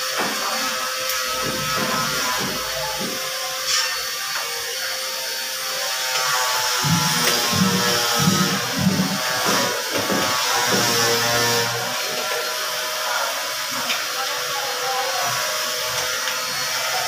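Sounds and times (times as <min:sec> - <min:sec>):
steady low beat: 0:06.7 - 0:09.3.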